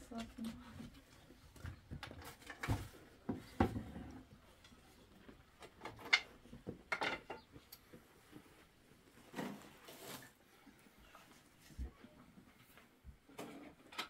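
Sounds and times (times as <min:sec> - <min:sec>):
objects knocking and clattering: 0:01.5 - 0:08.0.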